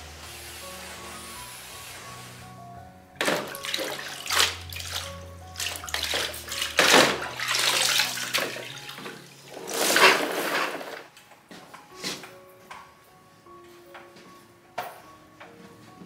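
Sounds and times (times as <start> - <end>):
quiet background music: 0.0 - 16.0
water pouring and splashing: 3.2 - 11.1.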